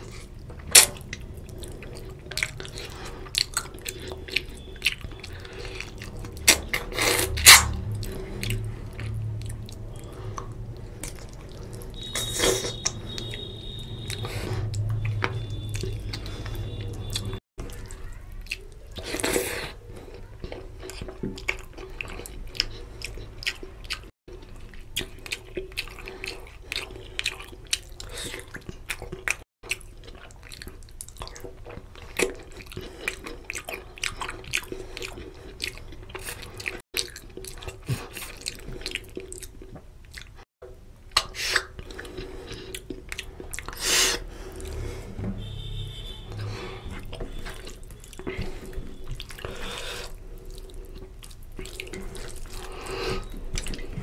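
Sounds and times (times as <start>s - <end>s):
chewing and lip-smacking: 0.0s - 45.0s, 46.2s - 54.0s.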